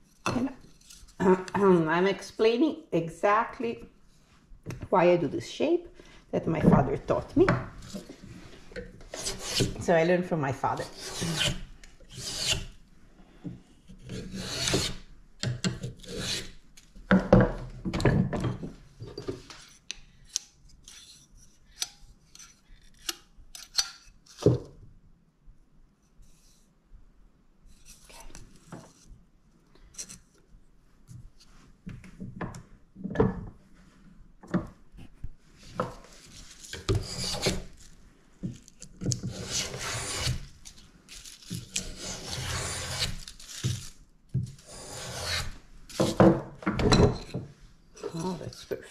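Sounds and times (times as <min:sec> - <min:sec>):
hand plane shaving wood: 0:09.1 - 0:09.8, 0:10.8 - 0:12.7, 0:14.0 - 0:15.0, 0:16.0 - 0:16.5, 0:36.7 - 0:37.8, 0:39.1 - 0:40.5, 0:41.7 - 0:43.3, 0:44.6 - 0:46.2.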